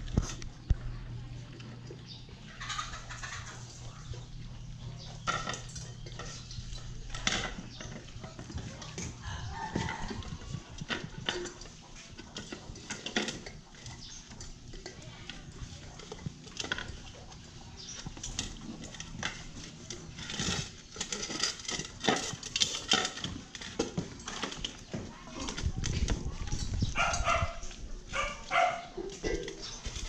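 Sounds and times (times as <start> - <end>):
dishes clinking and scraping on floor: 1.5 - 30.0.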